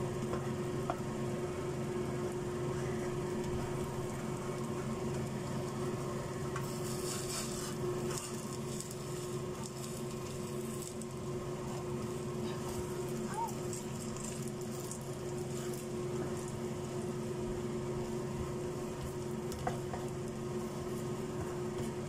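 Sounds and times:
pancake sizzling in oil: 0:00.0 - 0:22.0
steady low hum: 0:00.0 - 0:22.0
spatula scraping a pan: 0:06.6 - 0:08.4.

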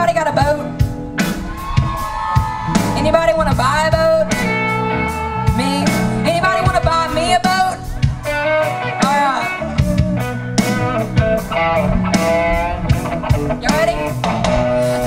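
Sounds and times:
live country band playing: 0:00.0 - 0:15.0
woman singing: 0:05.5 - 0:07.8.

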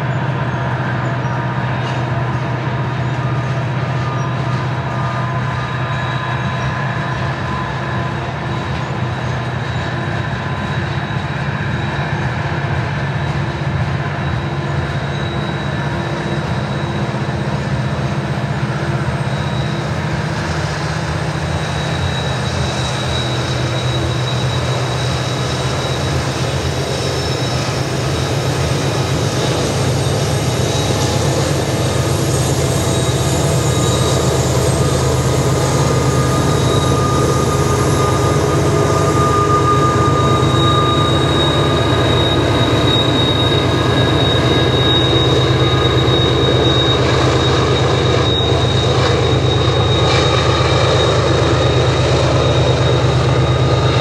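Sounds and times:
faint wheel squeal: 0:00.0 - 0:54.0
low diesel engine drone: 0:00.0 - 0:54.0
rolling of train cars: 0:00.0 - 0:54.0.

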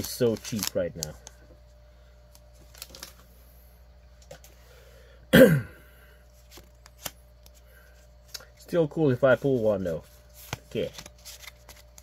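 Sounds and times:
person clearing throat: 0:05.3 - 0:05.9.

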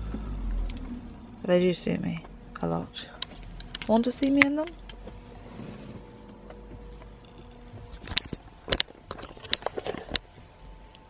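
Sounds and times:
handling clicks and taps: 0:03.2 - 0:05.2.

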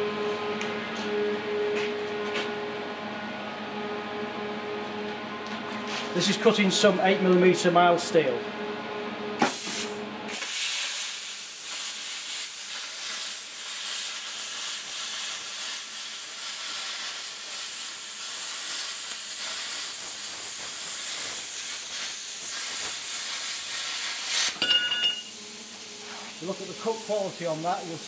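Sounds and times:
plasma cutter hissing: 0:09.4 - 0:24.6, 0:25.6 - 0:28.0.

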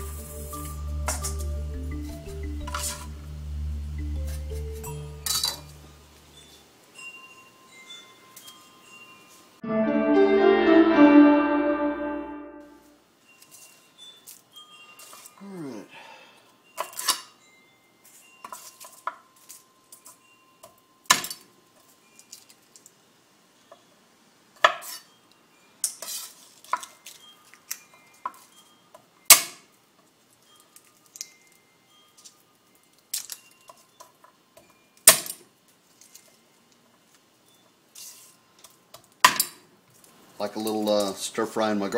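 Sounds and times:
dishes and utensils clinking: 0:04.3 - 0:05.8.

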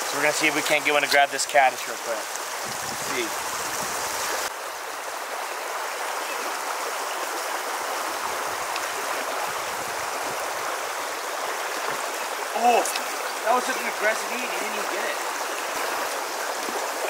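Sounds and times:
creek rushing over stones: 0:00.0 - 0:17.0.

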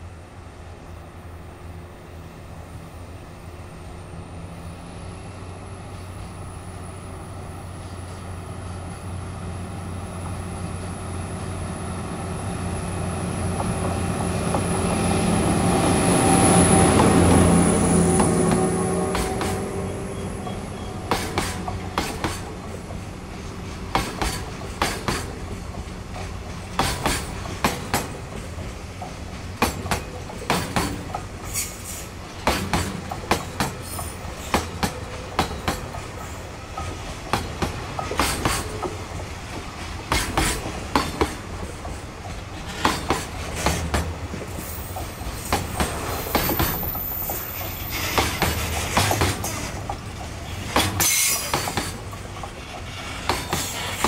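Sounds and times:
freight train rumbling past: 0:00.0 - 0:54.0
train wheels clacking over rail joints: 0:16.2 - 0:54.0.

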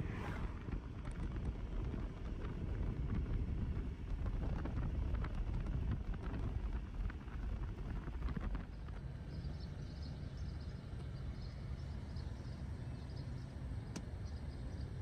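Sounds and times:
wind buffeting microphone: 0:00.0 - 0:09.7.

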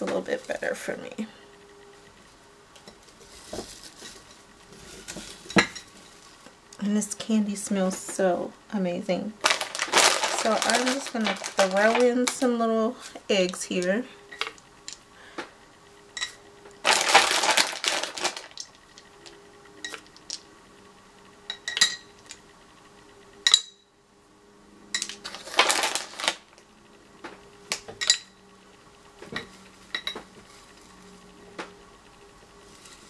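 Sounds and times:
crinkly plastic rustling: 0:03.0 - 0:06.5, 0:09.4 - 0:14.0, 0:16.8 - 0:19.3, 0:25.1 - 0:26.6, 0:32.6 - 0:33.0.

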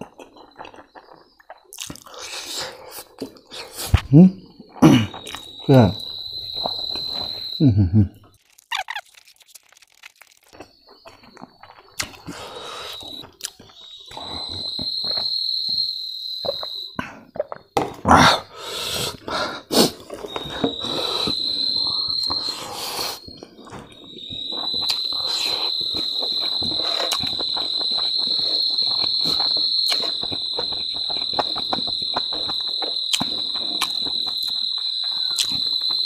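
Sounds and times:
insects buzzing: 0:02.1 - 0:07.7, 0:08.4 - 0:17.0, 0:18.5 - 0:36.0
close-up chewing: 0:08.3 - 0:14.9, 0:19.1 - 0:36.0.

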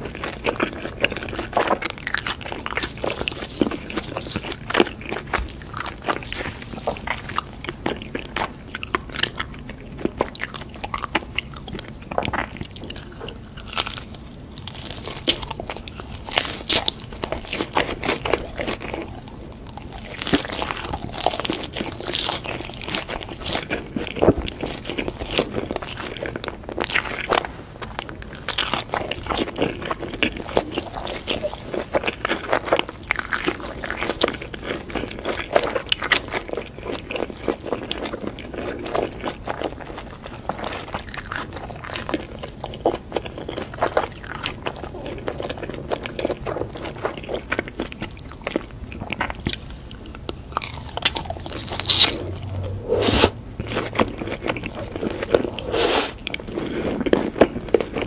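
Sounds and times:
crunchy bites and chewing: 0:00.0 - 0:58.0.

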